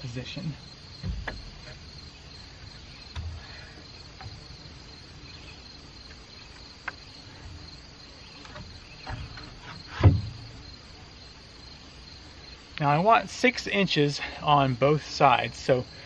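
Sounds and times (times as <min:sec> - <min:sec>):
crickets chirring: 0:00.0 - 0:16.0
wooden beam knocking: 0:01.0 - 0:01.9, 0:08.5 - 0:10.6.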